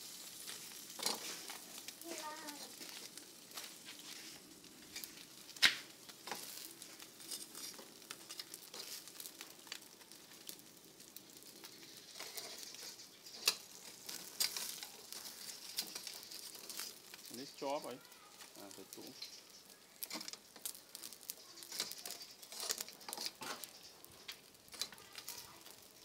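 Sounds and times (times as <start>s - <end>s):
charcoal crackling: 0.0s - 26.0s
fish sizzling on grill: 0.0s - 26.0s
sharp pop: 5.6s - 5.9s.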